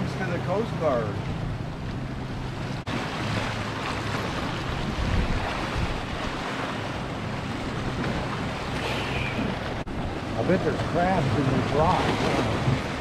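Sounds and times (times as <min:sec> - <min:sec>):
wind buffeting microphone: 0:01.1 - 0:13.0
ocean surf breaking on rocks: 0:02.7 - 0:13.0.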